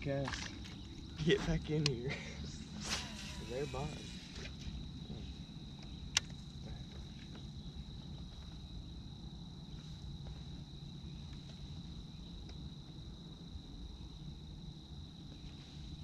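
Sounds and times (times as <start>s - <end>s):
high-pitched whine: 0.0s - 6.6s.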